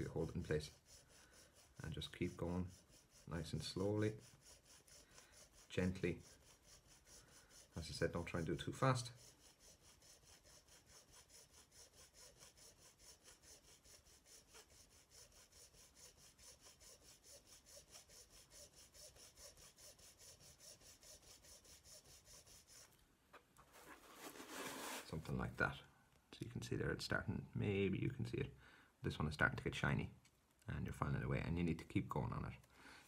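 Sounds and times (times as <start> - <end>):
hand file rasping on metal: 0.0 - 22.9.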